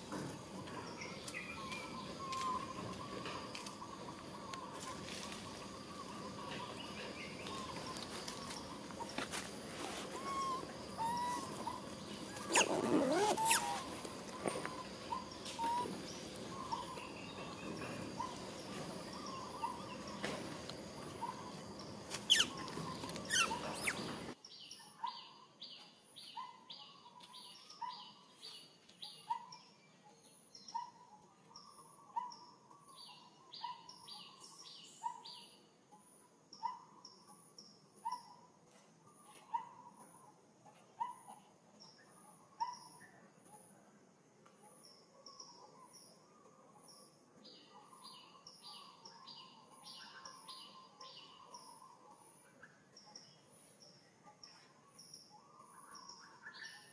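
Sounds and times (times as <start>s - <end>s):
bird calls: 0.0s - 25.5s.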